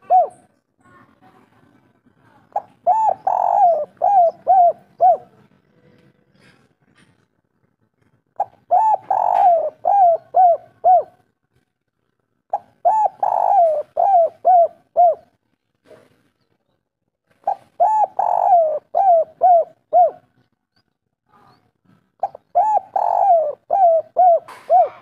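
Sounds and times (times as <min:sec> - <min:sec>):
dove cooing: 0:00.0 - 0:00.5, 0:02.5 - 0:05.5, 0:08.4 - 0:11.2, 0:12.5 - 0:15.4, 0:17.4 - 0:20.3, 0:22.2 - 0:25.0.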